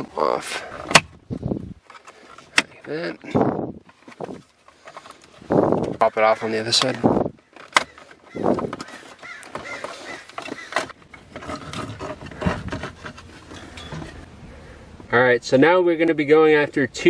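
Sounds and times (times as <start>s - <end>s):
plastic rustling: 3.8s - 14.3s
plastic trim being pried off: 7.6s - 13.3s.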